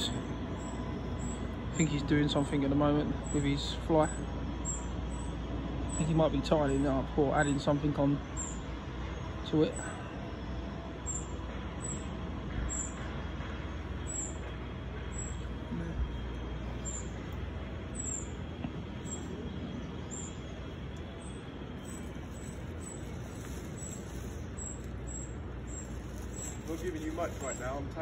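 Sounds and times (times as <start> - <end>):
low background rumble: 15.0 - 28.0
small bird chirping: 15.0 - 28.0.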